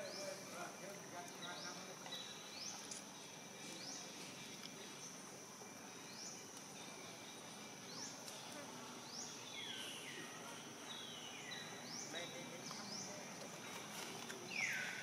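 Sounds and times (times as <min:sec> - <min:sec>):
insects buzzing: 0:00.0 - 0:15.0.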